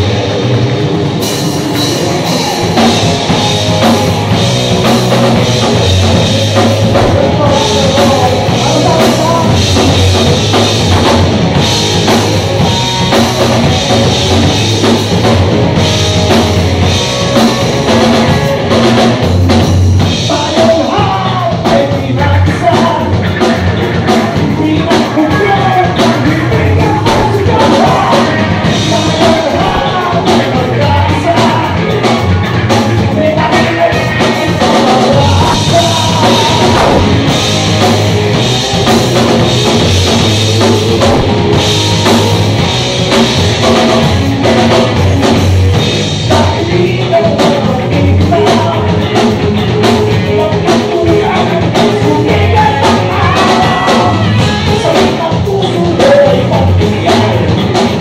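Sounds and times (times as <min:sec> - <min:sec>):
drum kit with cymbals: 0:00.0 - 0:58.0
electric bass: 0:00.0 - 0:58.0
person singing: 0:01.7 - 0:11.2, 0:20.2 - 0:58.0.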